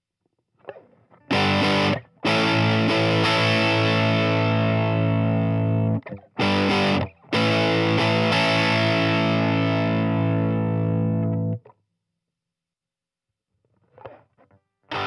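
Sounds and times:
distorted electric guitar chords: 1.3s - 11.6s.

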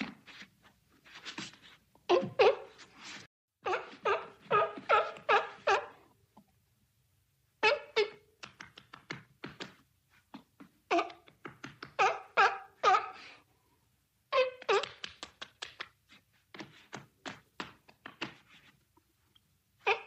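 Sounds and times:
seal barking: 12.0s - 13.4s.

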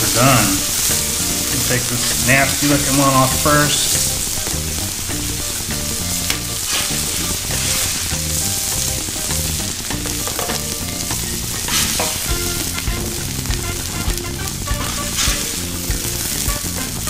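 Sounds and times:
background music: 0.0s - 17.0s
tacos sizzling on a griddle: 0.0s - 17.0s
metal spatula scraping and tapping: 10.0s - 12.7s.

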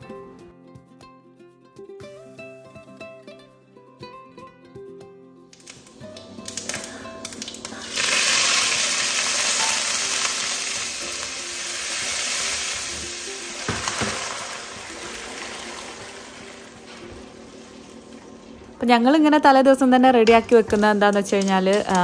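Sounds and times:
mustard seeds crackling in oil: 5.5s - 18.9s, 20.2s - 22.0s
loud sizzle in hot oil: 5.6s - 18.6s
utensil knocking: 13.0s - 16.2s.

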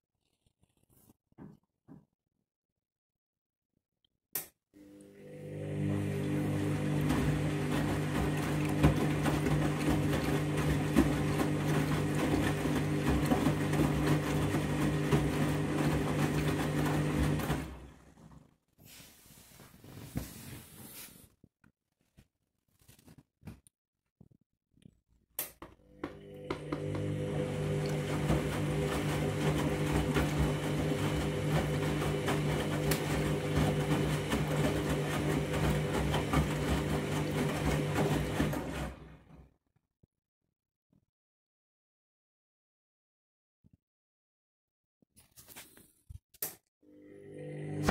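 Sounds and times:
washing machine motor hum: 4.8s - 18.6s, 25.7s - 39.4s, 46.8s - 47.9s.

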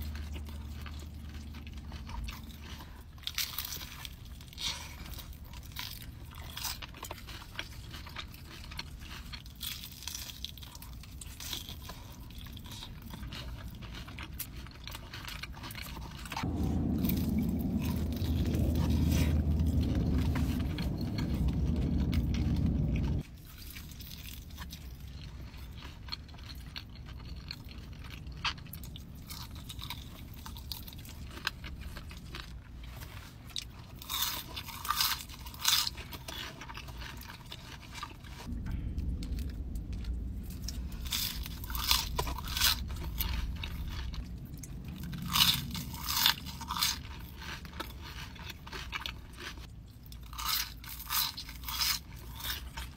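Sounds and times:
low rumble: 0.0s - 4.2s, 15.8s - 23.3s, 38.0s - 52.9s
crunching and chewing fried chicken: 0.0s - 52.9s.

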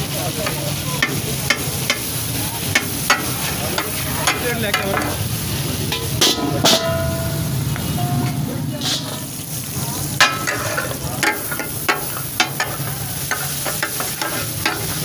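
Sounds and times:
fish sizzling on griddle: 0.0s - 15.0s
metal spatulas chopping and scraping: 5.9s - 7.2s, 10.2s - 15.0s.

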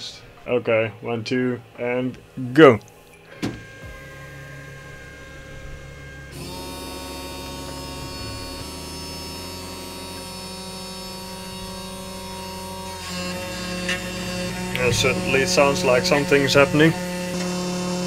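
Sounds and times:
rotary tool humming and whining: 2.5s - 18.0s.

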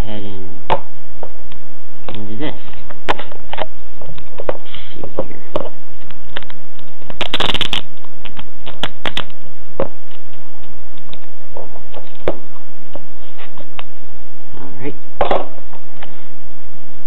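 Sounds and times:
plastic film crinkling: 7.1s - 9.3s
plastic film tearing: 7.2s - 7.9s.

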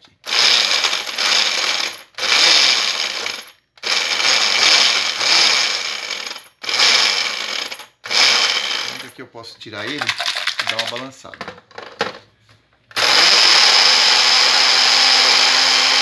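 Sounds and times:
blender motor pulsing: 0.3s - 9.0s, 12.9s - 16.0s
blender chopping dry bread: 12.9s - 16.0s.

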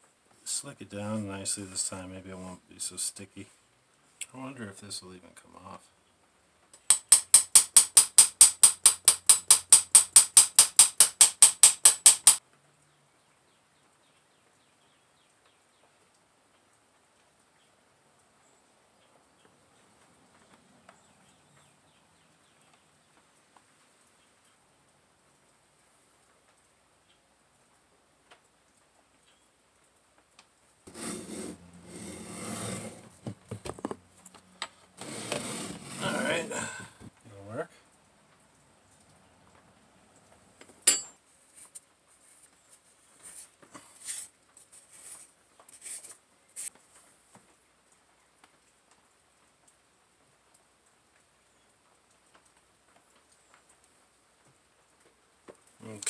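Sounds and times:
rapid sharp clicks: 6.8s - 12.4s
sharp wooden knocks: 6.8s - 12.4s, 33.2s - 34.0s
wood and sand scraping: 30.9s - 34.0s, 35.0s - 36.7s.

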